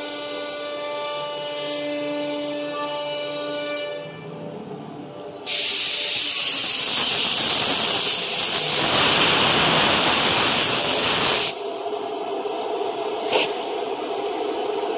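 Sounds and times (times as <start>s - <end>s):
compressed air hissing: 5.4s - 11.7s, 13.2s - 14.8s.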